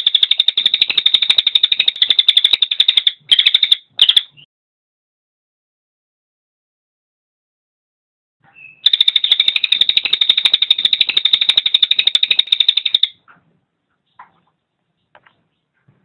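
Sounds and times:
songbird rattling call: 0:00.0 - 0:04.4, 0:08.8 - 0:13.1.

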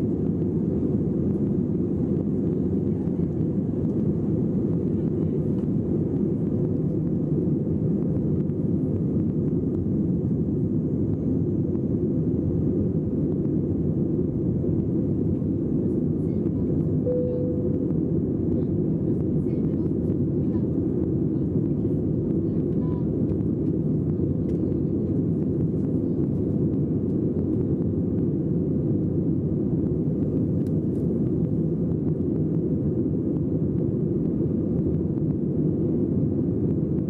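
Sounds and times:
jet engines rumbling in cabin: 0:00.0 - 0:37.0
brief tone: 0:17.0 - 0:18.0.

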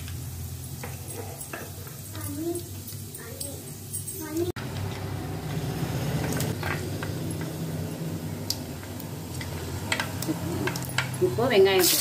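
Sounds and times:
seeds popping in hot oil: 0:08.4 - 0:12.0.

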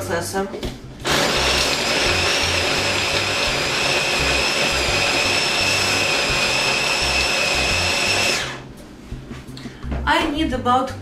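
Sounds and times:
food processor motor whine: 0:01.0 - 0:08.7.

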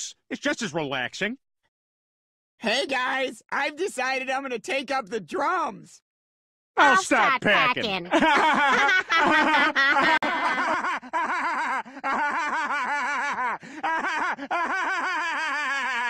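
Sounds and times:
cartoon character giggling: 0:08.0 - 0:16.0.

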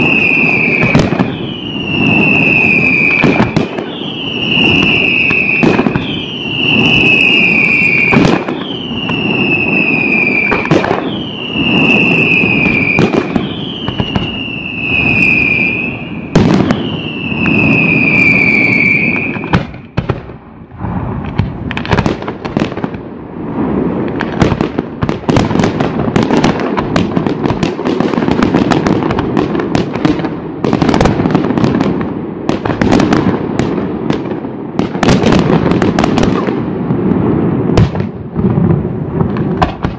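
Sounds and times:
rumble of firework bursts: 0:00.0 - 0:39.9
whistling fireworks: 0:00.0 - 0:39.9
fast crackle of small bangs: 0:08.0 - 0:09.2, 0:10.5 - 0:11.1, 0:21.2 - 0:23.0, 0:39.2 - 0:39.9.

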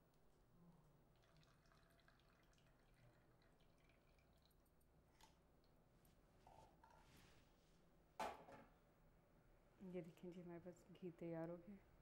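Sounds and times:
liquid trickling through strainer: 0:01.2 - 0:04.6.

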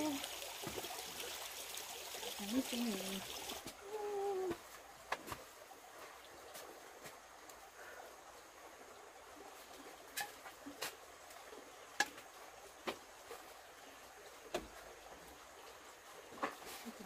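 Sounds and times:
faint steady hiss: 0:00.0 - 0:17.0.

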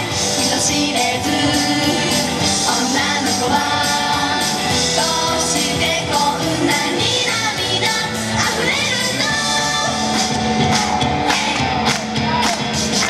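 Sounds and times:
pop song through speaker: 0:00.0 - 0:13.0.

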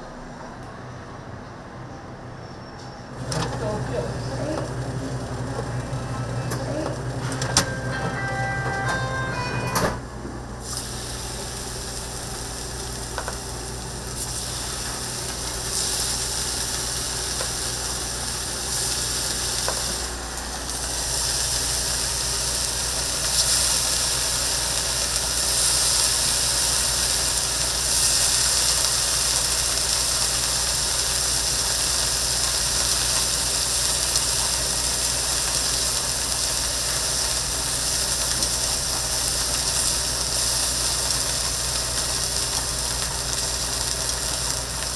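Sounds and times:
steady low hum: 0:03.2 - 0:16.3
food sizzling on griddle: 0:10.6 - 0:44.9.

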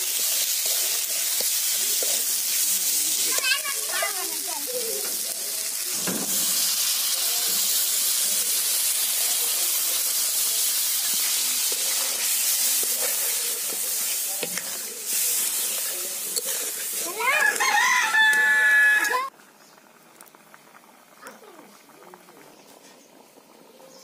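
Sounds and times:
oil sizzling and hissing: 0:00.0 - 0:23.6
spatula stirring curry: 0:00.1 - 0:03.4, 0:07.5 - 0:17.6
rooster crowing: 0:17.3 - 0:19.3.

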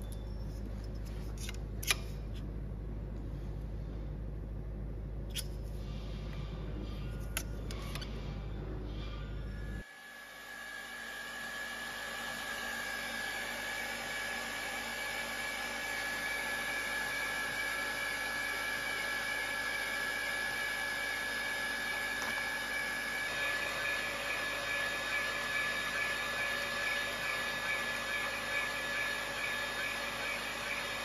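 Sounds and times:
boring machine whining: 0:06.6 - 0:31.0.

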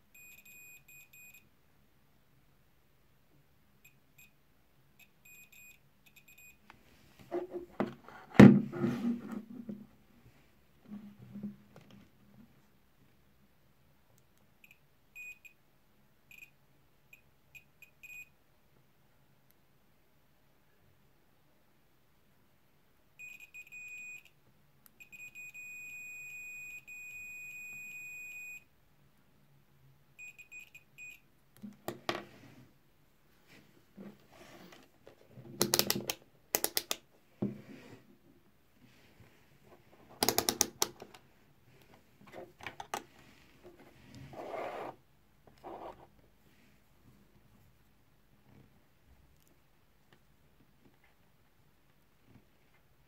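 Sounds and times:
multimeter continuity beeps: 0:00.1 - 0:01.5, 0:03.8 - 0:04.4, 0:05.0 - 0:06.6, 0:14.6 - 0:15.6, 0:23.2 - 0:24.3, 0:25.0 - 0:28.7, 0:30.2 - 0:31.2.

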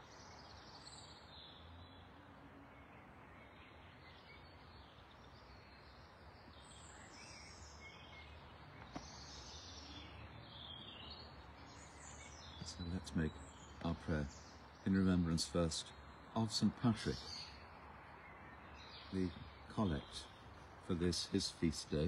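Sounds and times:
faint distant birdsong: 0:00.0 - 0:22.0.

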